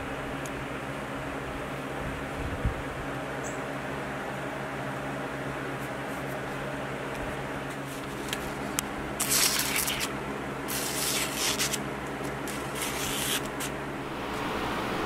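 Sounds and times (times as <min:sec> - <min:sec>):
steady low hum: 0:00.0 - 0:15.0
knife slicing through paper: 0:09.2 - 0:13.8.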